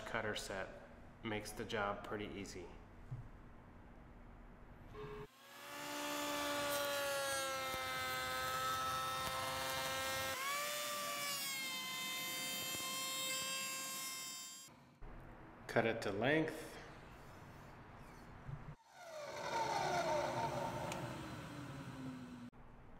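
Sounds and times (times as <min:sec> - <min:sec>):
router cutting wood whine: 0:05.0 - 0:14.7, 0:18.8 - 0:22.5.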